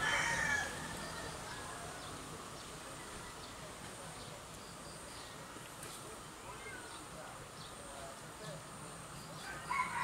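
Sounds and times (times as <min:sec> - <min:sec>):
rooster crowing: 0:00.0 - 0:00.8, 0:09.4 - 0:10.0
faint insect drone: 0:00.0 - 0:10.0.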